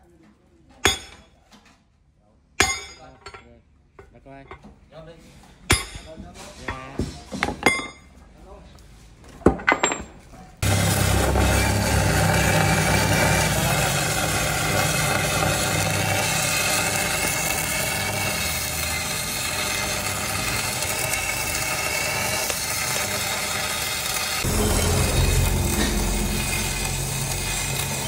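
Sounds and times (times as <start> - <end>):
electric arc welding: 10.6 - 28.0.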